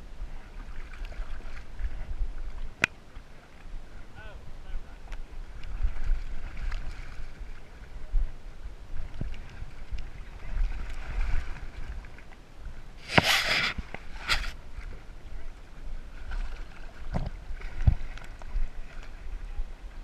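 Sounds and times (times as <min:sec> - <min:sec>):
water sloshing low rumble: 0:00.0 - 0:20.0
sharp water splash: 0:13.0 - 0:14.6.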